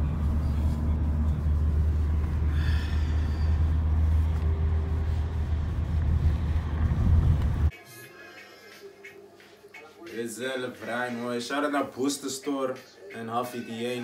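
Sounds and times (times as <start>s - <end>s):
car engine and tyres rumbling: 0.0s - 7.7s.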